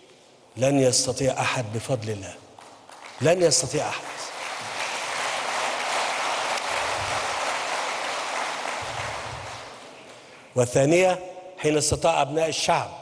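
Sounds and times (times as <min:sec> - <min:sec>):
audience applause: 0:02.6 - 0:10.3.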